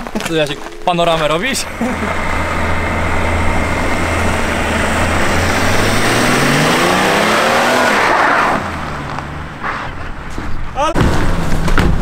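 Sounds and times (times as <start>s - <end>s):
wheels spinning: 0.0s - 10.0s
car engine revving: 0.5s - 10.6s.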